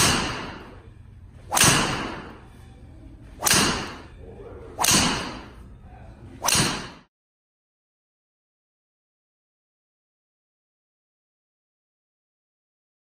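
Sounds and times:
golf driver striking balls: 0.0 - 0.9, 1.5 - 2.5, 3.4 - 4.2, 4.8 - 5.6, 6.4 - 7.0.

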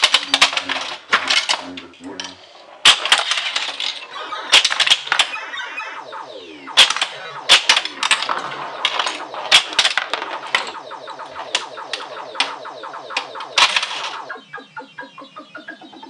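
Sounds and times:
pinball mechanical clacks: 0.0 - 5.4, 6.3 - 14.4
electronic warbling tones: 4.0 - 16.0.

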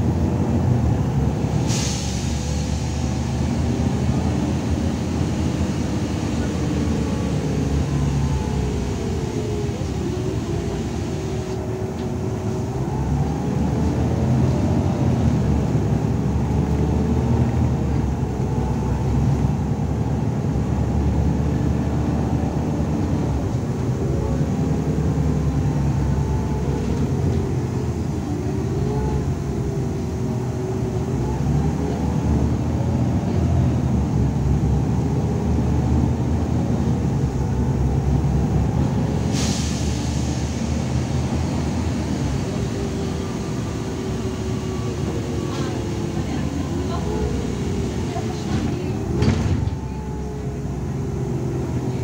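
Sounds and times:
bus engine and road rumble: 0.0 - 52.0.

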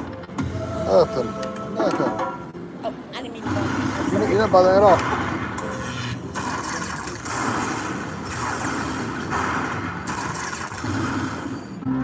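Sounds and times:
slot machine electric crackle: 3.4 - 12.0.

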